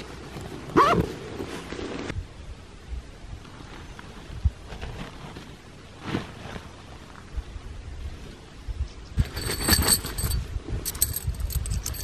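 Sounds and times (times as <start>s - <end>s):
wind buffeting microphone: 7.3s - 12.0s
metal tent pegs clinking: 9.2s - 12.0s.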